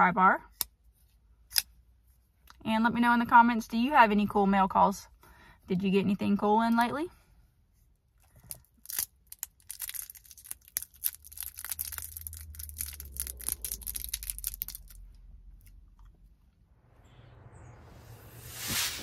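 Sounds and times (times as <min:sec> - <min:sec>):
wrapper crinkling: 0:08.7 - 0:15.2.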